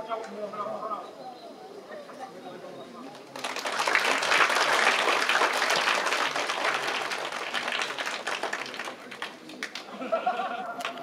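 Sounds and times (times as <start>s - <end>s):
crowd applause: 3.4s - 11.0s.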